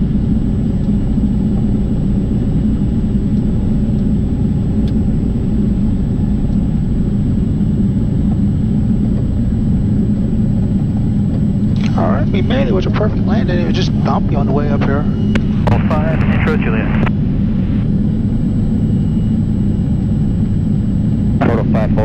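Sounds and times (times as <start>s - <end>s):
light aircraft engine rumble: 0.0s - 22.0s.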